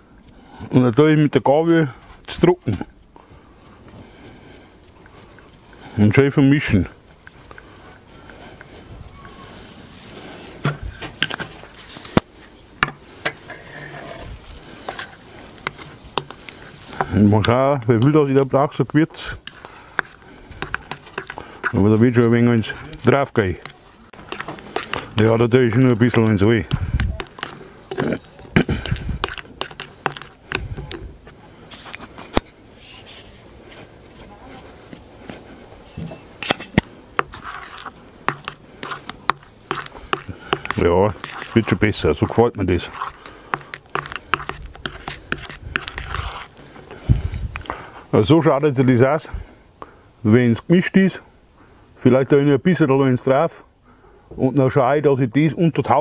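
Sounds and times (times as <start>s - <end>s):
fork scraping metal bowl: 13.4s - 17.2s, 19.4s - 21.9s, 23.6s - 31.0s, 36.4s - 46.9s.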